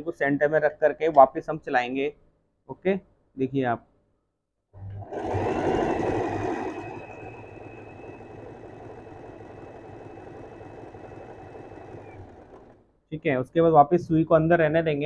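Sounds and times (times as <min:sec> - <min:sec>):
sewing machine running: 0:05.0 - 0:12.8.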